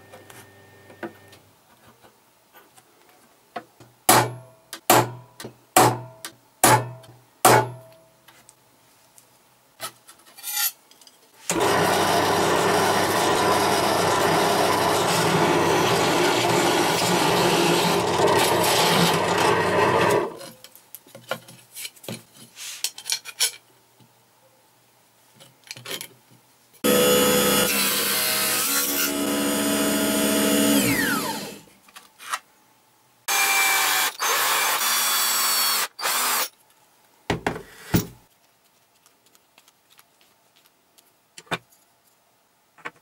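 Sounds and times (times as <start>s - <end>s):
electric drill boring into metal: 11.5s - 20.4s, 26.8s - 31.6s, 33.3s - 36.5s.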